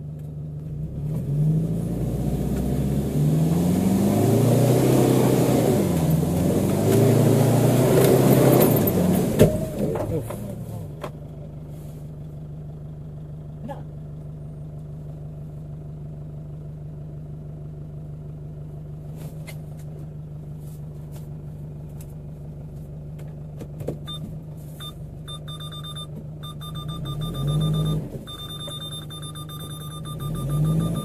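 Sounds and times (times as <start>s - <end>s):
engine revving: 0.7s - 10.9s, 25.3s - 31.0s
car engine idling: 8.9s - 31.0s
rapid electronic beeping: 25.3s - 31.0s.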